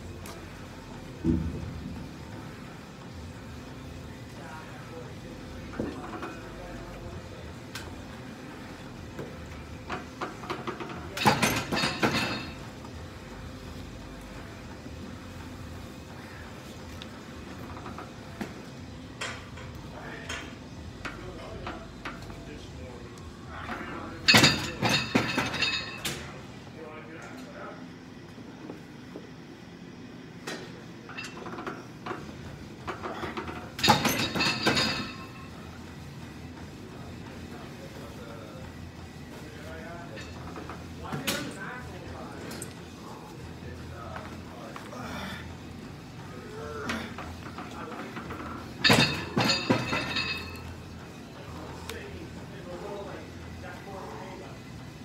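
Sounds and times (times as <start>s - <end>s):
clicks and clanks of metal frame: 47.2s - 50.7s.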